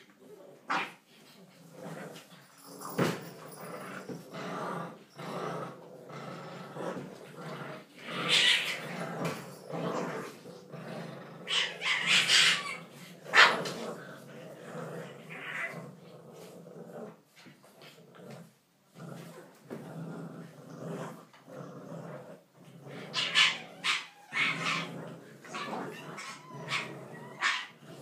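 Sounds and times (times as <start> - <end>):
puppies play-fighting and vocalising: 0.0 - 28.0.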